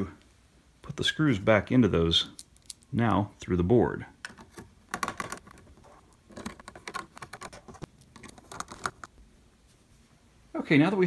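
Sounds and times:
screwdriver clicking and scratching: 0:05.0 - 0:09.1.

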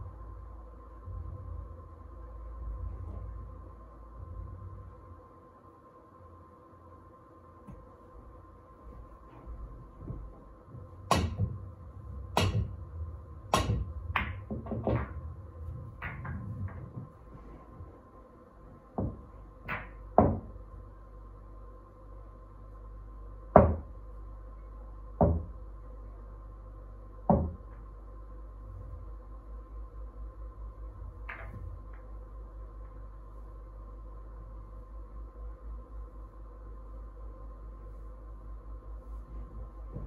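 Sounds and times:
pool balls clacking: 0:09.4 - 0:17.9, 0:18.8 - 0:20.6, 0:31.2 - 0:32.1.

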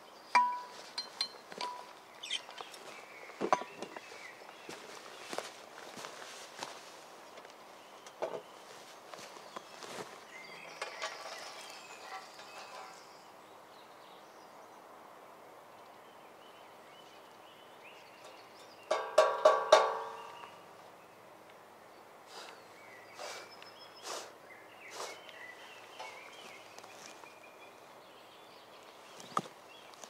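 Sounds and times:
metallic clanks ringing: 0:00.4 - 0:01.9, 0:18.9 - 0:20.4.

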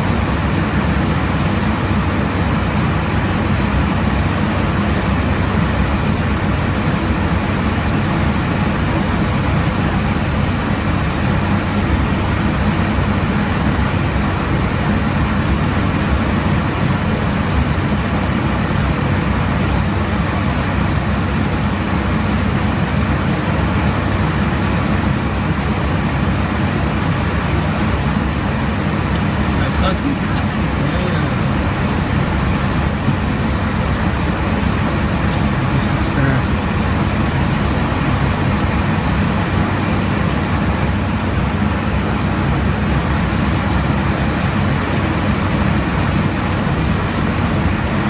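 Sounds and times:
aircraft cabin engine roar: 0:00.0 - 0:48.0
low even hum: 0:00.0 - 0:48.0.

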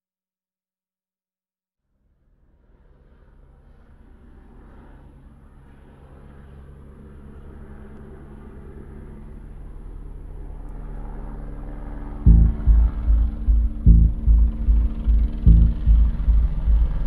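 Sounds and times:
jet aircraft engine rumble: 0:12.3 - 0:17.0.

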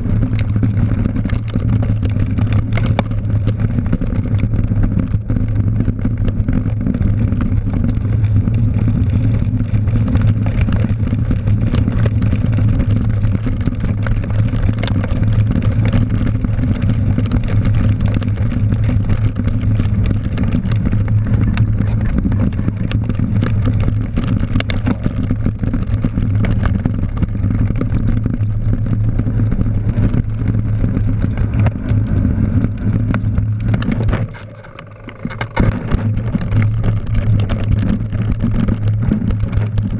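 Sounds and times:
bike rattling over bumps: 0:00.0 - 0:39.9
tyre rolling on dirt: 0:00.0 - 0:39.9
wind buffeting microphone: 0:00.0 - 0:39.9.

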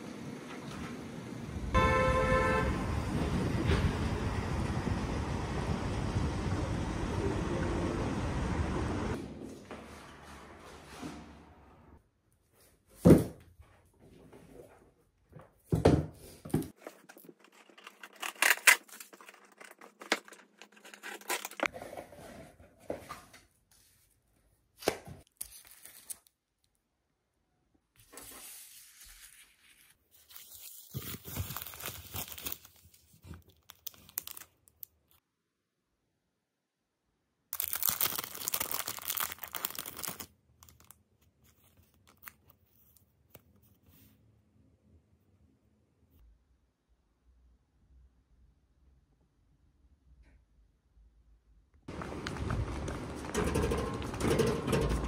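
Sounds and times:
plastic packaging crinkling: 0:16.8 - 0:21.7, 0:25.2 - 0:26.7, 0:29.1 - 0:35.2, 0:37.6 - 0:43.0
plastic tearing: 0:16.8 - 0:21.7, 0:30.8 - 0:35.0, 0:37.6 - 0:42.6.

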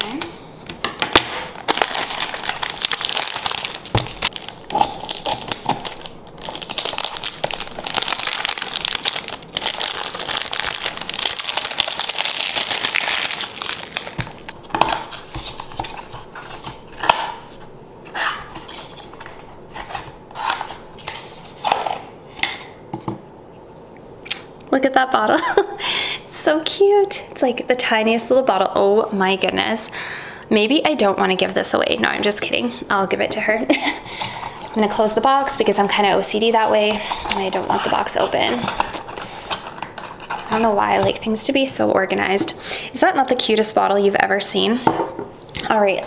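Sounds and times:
cellophane crinkling: 0:01.4 - 0:17.0, 0:34.2 - 0:41.3.

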